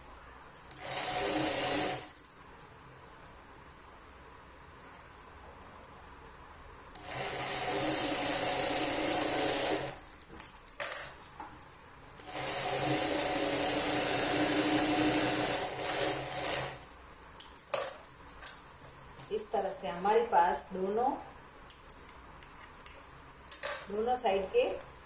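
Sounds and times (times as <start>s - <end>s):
electric sewing machine stitching: 0.7s - 2.3s, 7.0s - 10.2s, 12.2s - 17.0s.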